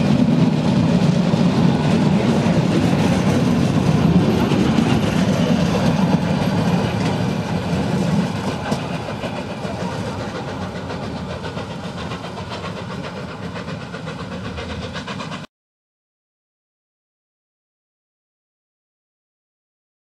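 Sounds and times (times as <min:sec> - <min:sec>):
train wheels clacking over rail joints: 0:00.0 - 0:15.5.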